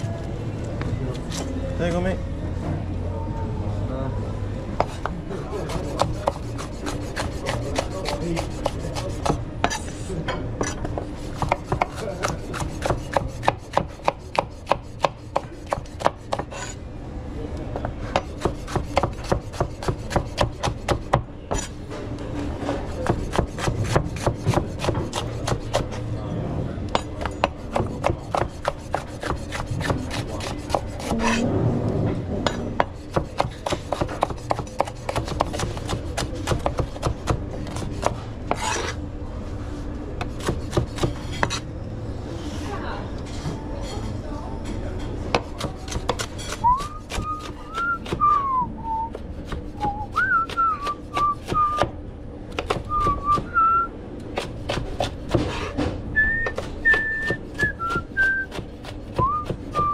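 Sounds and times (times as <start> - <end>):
utensil striking cooking surface: 32.4 - 37.4.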